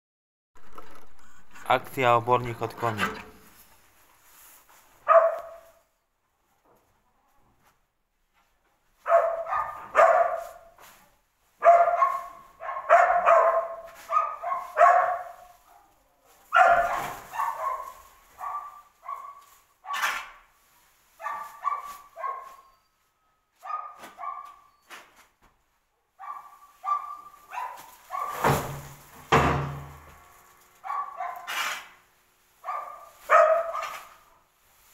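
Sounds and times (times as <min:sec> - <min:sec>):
dog barking: 0:05.0 - 0:05.8, 0:09.0 - 0:10.8, 0:11.6 - 0:20.3, 0:21.2 - 0:22.7, 0:23.6 - 0:24.7, 0:26.2 - 0:28.6, 0:30.8 - 0:31.6, 0:32.6 - 0:34.3.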